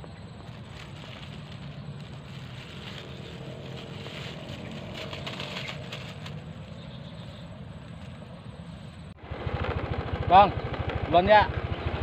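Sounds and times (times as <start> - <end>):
plastic bag crinkling: 0.4 - 6.7.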